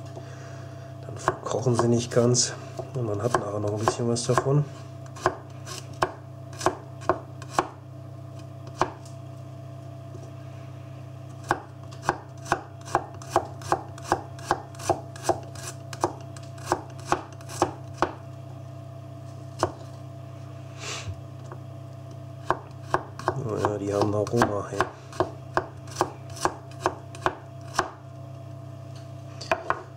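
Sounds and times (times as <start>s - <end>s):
knife slicing garlic on board: 1.2s - 2.1s, 2.8s - 7.8s, 8.4s - 9.0s, 11.4s - 18.2s, 22.4s - 28.0s, 29.5s - 29.8s.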